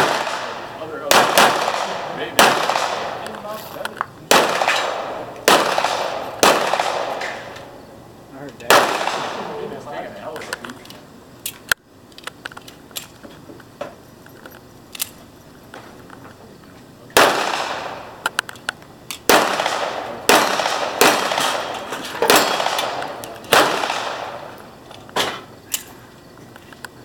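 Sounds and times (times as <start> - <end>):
handgun shots: 0.0 - 3.4, 4.3 - 7.7, 8.6 - 9.5, 17.2 - 18.3, 19.1 - 24.6.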